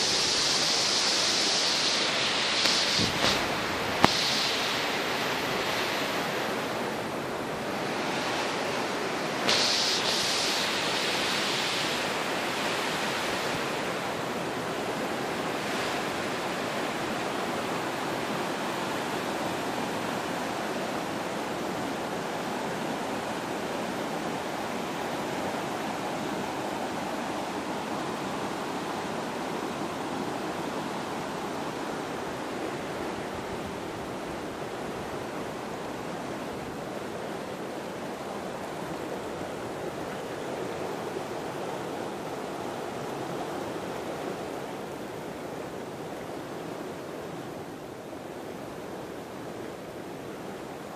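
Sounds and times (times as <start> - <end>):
rocky stream flowing: 0.0 - 50.9.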